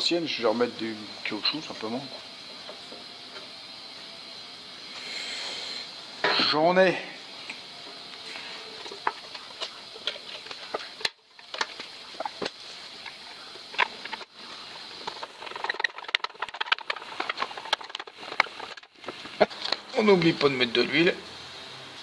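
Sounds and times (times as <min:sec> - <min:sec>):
quick run of small clicks: 0:15.0 - 0:19.8.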